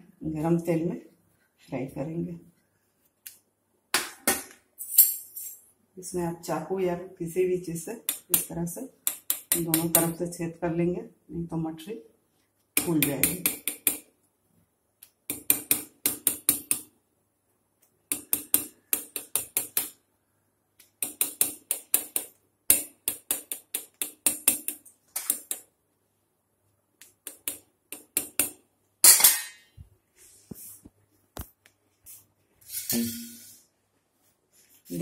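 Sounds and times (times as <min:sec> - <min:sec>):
fork tapping on stone countertop: 0:08.1 - 0:10.0, 0:12.8 - 0:14.1, 0:15.3 - 0:16.9, 0:18.1 - 0:20.0, 0:21.0 - 0:25.6, 0:27.2 - 0:28.6.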